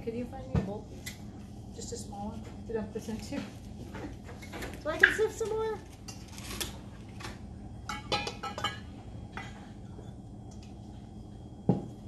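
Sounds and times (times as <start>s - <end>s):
utensils clinking on metal bowl: 7.9s - 8.9s.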